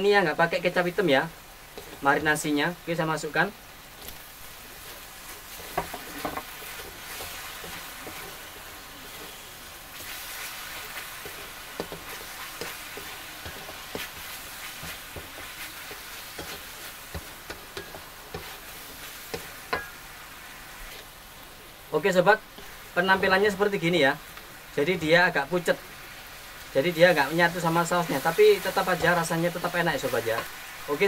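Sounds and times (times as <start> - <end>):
meat sizzling in a wok: 0.0 - 31.0
spatula scraping a pan: 4.7 - 20.0.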